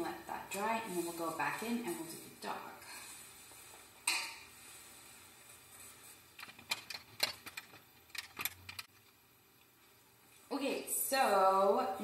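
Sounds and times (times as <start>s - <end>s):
painting supplies clicking and tapping: 6.4s - 8.9s.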